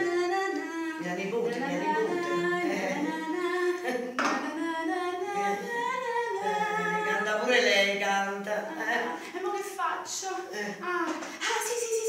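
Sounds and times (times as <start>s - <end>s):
woman singing slow tune: 0.0s - 9.2s.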